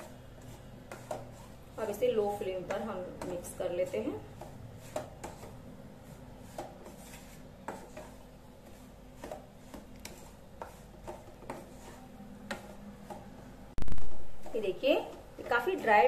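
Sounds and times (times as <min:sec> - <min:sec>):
wooden spatula scraping a pan: 0:00.0 - 0:13.3.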